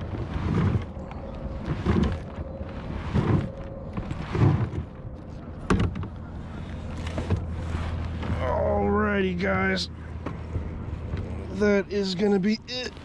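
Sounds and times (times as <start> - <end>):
wind on microphone: 0.0 - 8.1
paddle strokes swishing through water: 0.0 - 8.7, 10.0 - 13.0.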